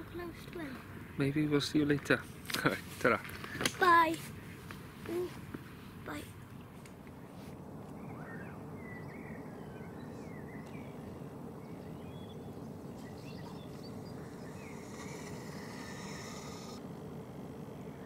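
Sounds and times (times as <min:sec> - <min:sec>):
faint wavering chirps: 0:08.0 - 0:18.0.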